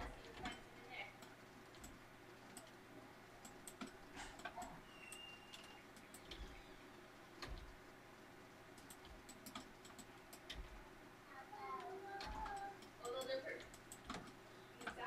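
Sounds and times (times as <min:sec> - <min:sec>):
computer mouse clicks: 0:01.2 - 0:02.8, 0:03.4 - 0:06.7, 0:08.7 - 0:10.8, 0:11.8 - 0:15.0.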